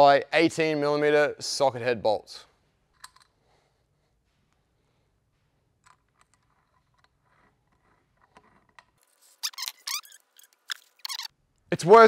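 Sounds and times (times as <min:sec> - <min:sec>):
bolt squeaking: 0:05.9 - 0:11.4.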